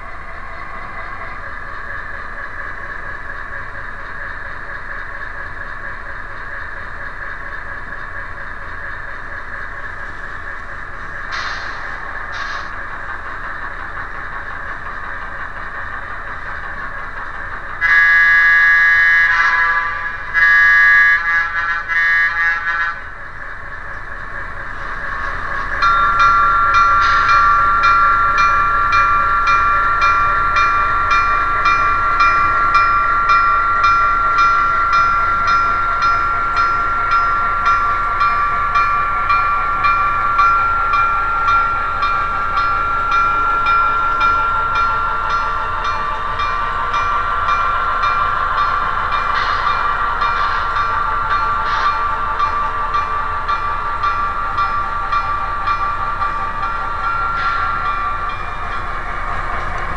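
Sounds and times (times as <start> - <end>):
diesel engine sound: 0.0 - 59.9
model train horn blasts: 17.8 - 23.2
bell ringing steadily: 22.9 - 59.9.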